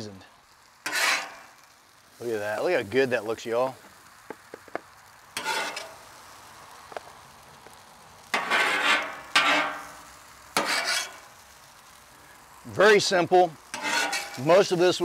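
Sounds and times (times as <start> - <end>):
metal spatula scraping griddle: 0.8 - 1.7, 5.4 - 6.1, 8.3 - 11.4, 13.6 - 15.0.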